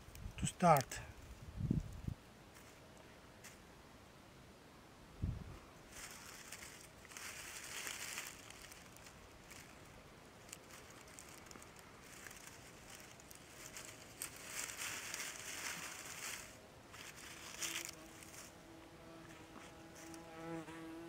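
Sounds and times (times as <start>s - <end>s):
dry leaves crinkling: 5.9s - 18.6s.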